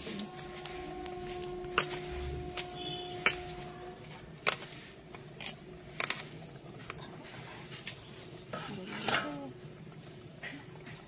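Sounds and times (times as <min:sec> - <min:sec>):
utensils and dishes clinking: 0:00.0 - 0:09.5
faint steady hum: 0:00.0 - 0:11.0.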